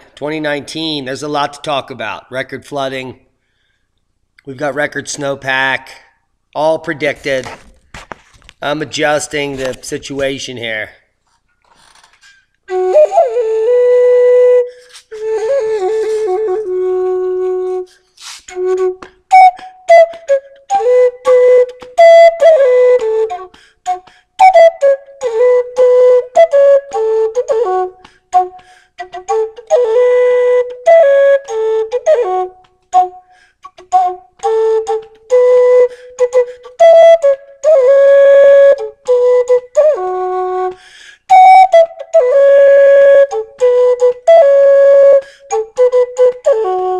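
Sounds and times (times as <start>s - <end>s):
flute melody: 12.7s - 46.9s.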